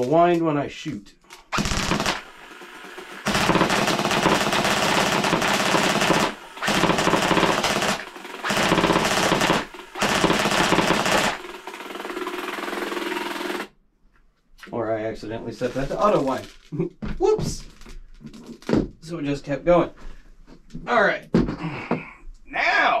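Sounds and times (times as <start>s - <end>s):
airsoft machine gun full-auto bursts: 1.5s - 13.7s
magazine winding motor running: 1.6s - 13.7s.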